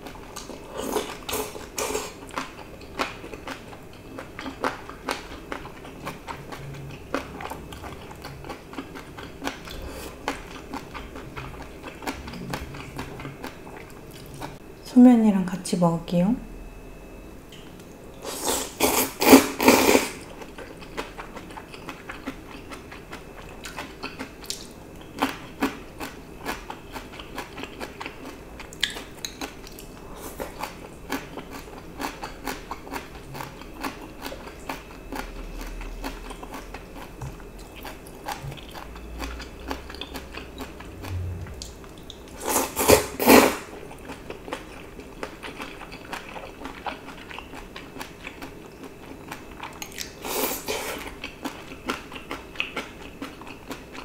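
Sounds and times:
person slurping noodles: 18.3s - 20.2s, 42.4s - 43.7s
wet chewing: 18.8s - 54.0s.

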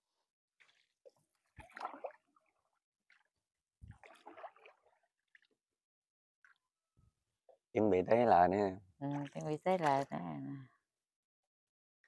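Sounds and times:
wooden paddle strokes in water: 0.6s - 5.6s.

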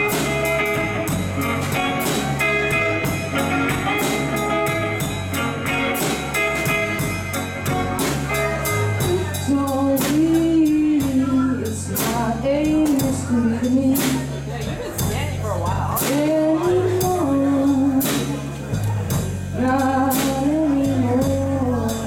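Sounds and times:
distorted electric guitar: 0.0s - 10.3s
person singing: 0.0s - 14.3s, 16.0s - 18.7s, 19.6s - 22.0s
drum kit beat: 0.0s - 22.0s
electric bass: 0.0s - 22.0s.

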